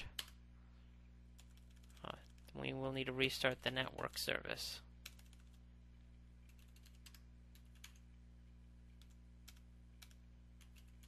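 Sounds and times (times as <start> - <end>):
keyboard typing: 0.0 - 0.4, 1.3 - 2.6, 5.0 - 8.1, 8.9 - 11.0
steady low hum: 0.0 - 11.0.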